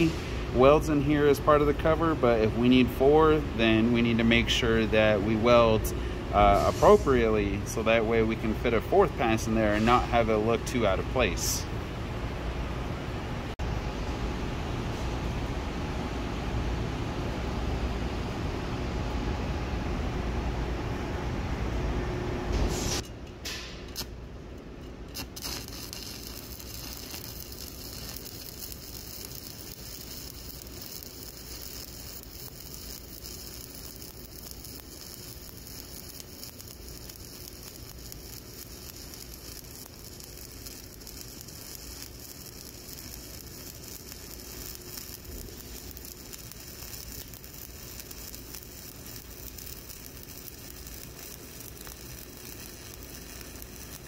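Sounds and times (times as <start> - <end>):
welding arc burning: 0.0 - 3.4, 22.7 - 24.3, 25.1 - 54.0
sharp arc cracks: 25.1 - 54.0.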